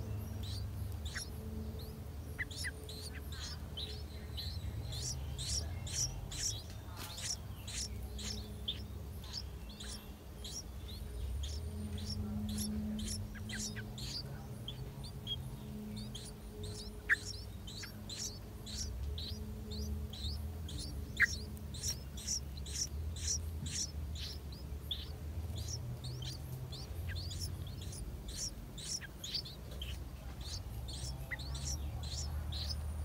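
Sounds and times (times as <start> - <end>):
nestling birds chirping: 0.0 - 33.0.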